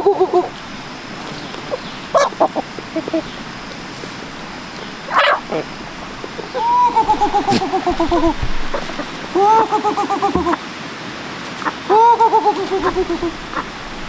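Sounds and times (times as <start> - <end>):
farmyard animals yelping: 0.0 - 10.6, 11.6 - 14.0
loud animal call: 0.0 - 10.6, 11.6 - 14.0
steady background hiss: 0.0 - 14.0.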